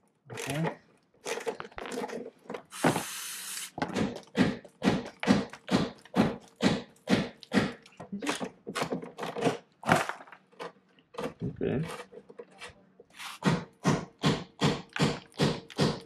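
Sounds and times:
aerosol spray hissing: 2.7s - 3.8s.

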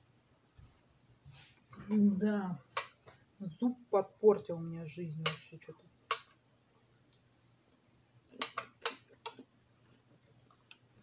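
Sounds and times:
cutlery clinking on plate: 8.4s - 9.4s.

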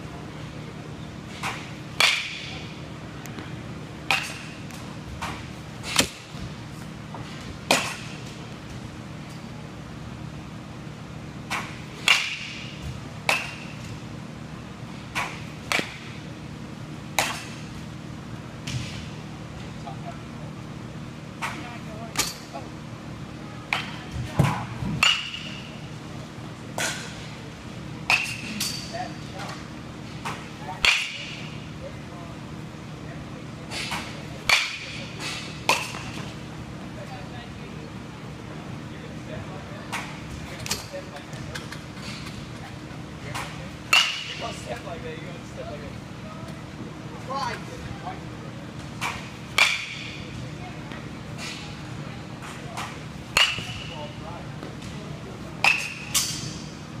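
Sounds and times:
steady low hum: 0.0s - 57.0s
baseball bat cracking ball: 1.4s - 2.6s, 7.7s - 8.1s, 13.2s - 13.8s, 15.1s - 16.1s, 33.8s - 36.3s, 43.4s - 44.5s, 49.0s - 50.2s, 52.8s - 54.0s, 55.6s - 56.6s
bat hitting ball with ping: 53.4s - 53.8s, 55.6s - 56.6s.

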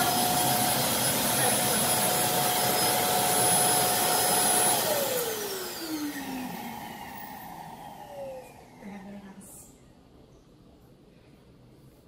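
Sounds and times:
suction motor whine: 0.0s - 8.8s.

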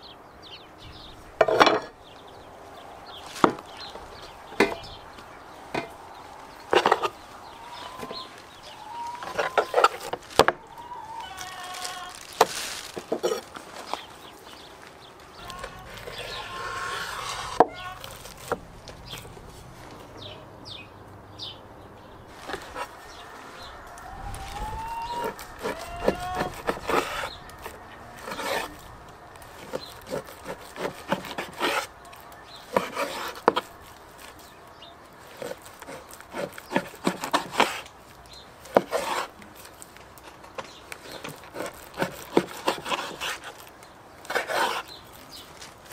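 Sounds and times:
faint rising calls: 0.0s - 35.0s
knife slicing meat on board: 32.7s - 33.7s.

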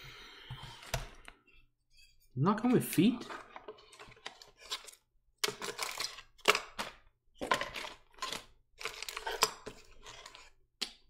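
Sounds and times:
plastic bags crinkling: 3.3s - 10.4s.

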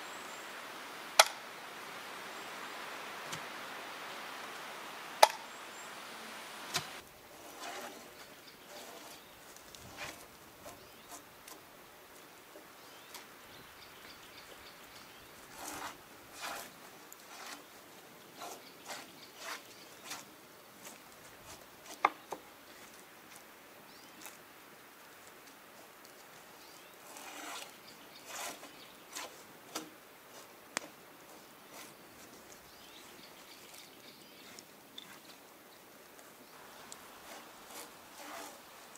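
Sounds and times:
drawknife scraping bark off log: 1.2s - 1.4s, 5.2s - 5.5s, 6.6s - 9.2s, 15.5s - 17.7s, 18.4s - 20.3s, 27.0s - 32.0s, 36.7s - 38.9s.

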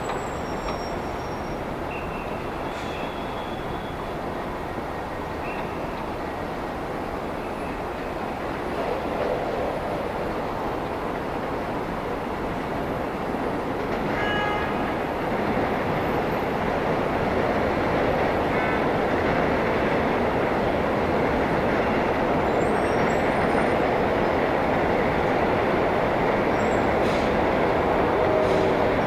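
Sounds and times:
elevated train rumbling: 0.0s - 29.0s
street traffic: 0.0s - 29.0s.

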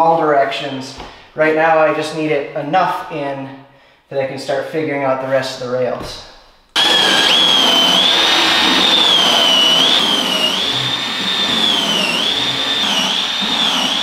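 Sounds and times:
cordless drill boring into wood: 6.8s - 14.0s.

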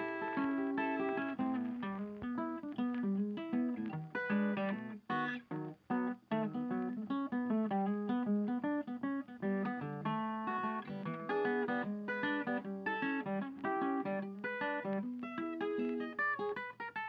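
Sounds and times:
acoustic guitar plucking: 0.0s - 17.0s.

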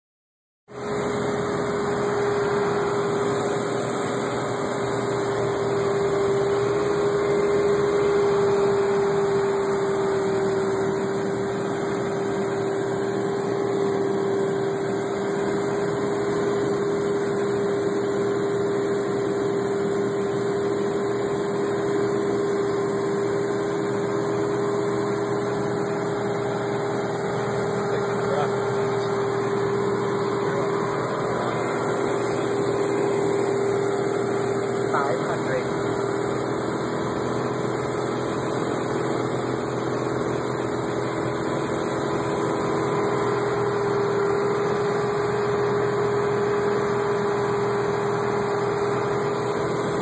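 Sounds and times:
light airplane engine droning: 0.7s - 50.0s
strong steady tone: 21.3s - 38.3s.

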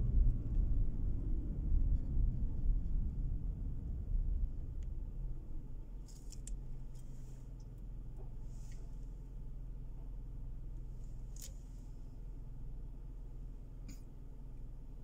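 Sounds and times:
car road rumble inside cabin: 0.0s - 15.0s
low engine idle hum: 0.0s - 15.0s.

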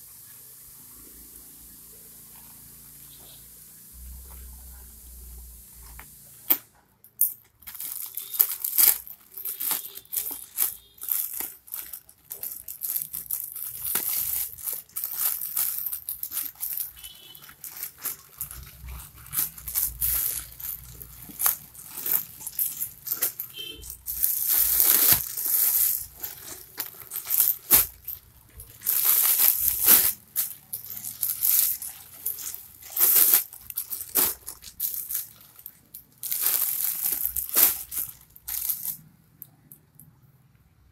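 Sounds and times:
plastic bag tearing and crinkling: 7.6s - 39.0s.

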